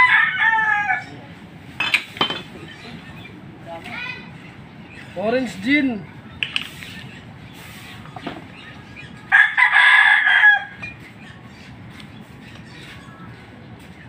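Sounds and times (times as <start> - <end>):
rooster crowing: 0.0 - 1.2, 9.3 - 11.0.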